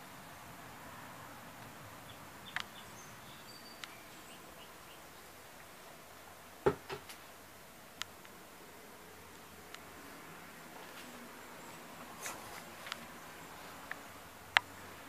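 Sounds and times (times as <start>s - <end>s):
faint steady hiss: 0.0s - 15.0s
faint high chirps: 2.1s - 5.2s.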